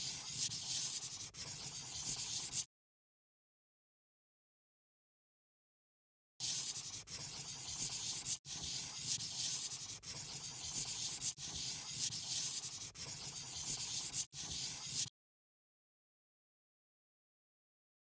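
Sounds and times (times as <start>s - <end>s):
pen scratching on paper: 0.0s - 2.7s, 6.4s - 15.1s.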